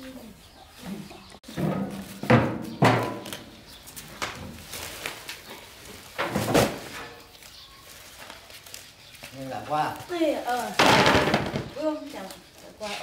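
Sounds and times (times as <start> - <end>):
heavy knocks and thuds: 10.8 - 11.8.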